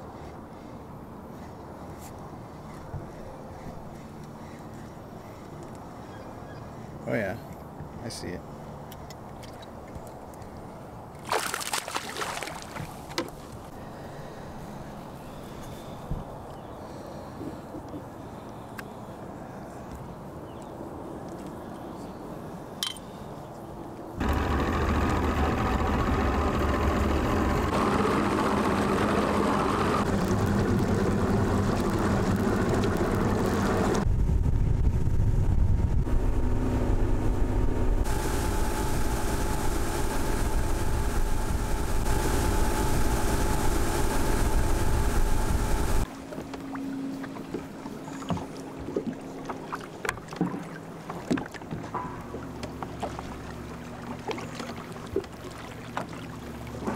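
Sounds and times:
wind and water noise: 0.0 - 56.9
outboard engine running: 24.2 - 56.9.

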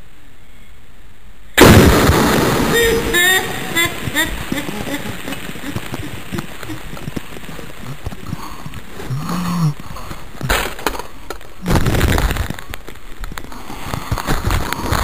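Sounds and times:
bottle bomb bursting: 1.6 - 7.9.

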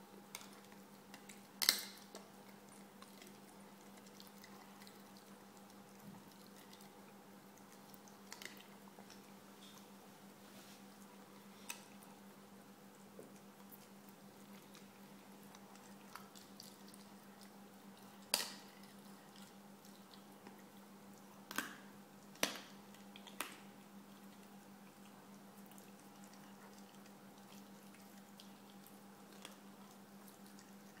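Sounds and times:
puppy gnawing wetly: 0.3 - 10.0, 10.9 - 31.0.

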